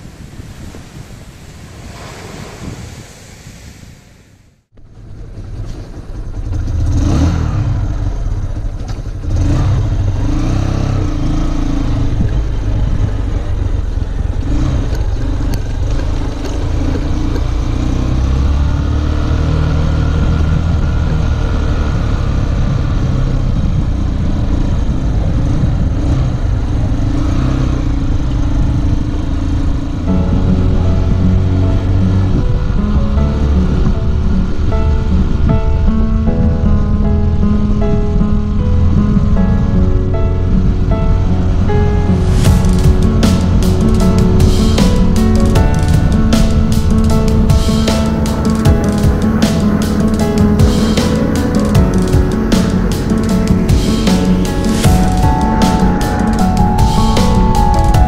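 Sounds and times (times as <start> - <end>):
wind and surf: 0.0 - 4.7, 32.4 - 58.0
motorcycle engine running: 4.8 - 36.1, 37.0 - 58.0.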